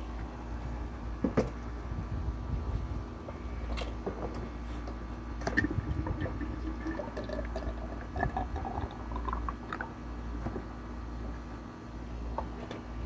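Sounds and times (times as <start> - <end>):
liquid glugging into tank: 5.4 - 10.0.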